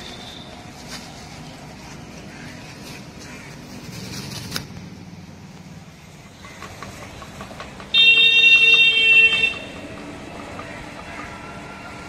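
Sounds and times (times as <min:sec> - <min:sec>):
vehicle horn: 0:07.9 - 0:09.8.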